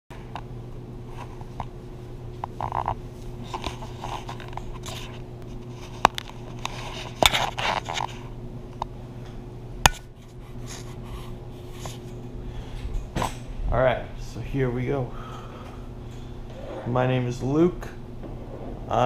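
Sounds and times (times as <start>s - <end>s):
steady low hum: 0.1s - 19.0s
camera handling rustling scrapes: 2.6s - 8.2s.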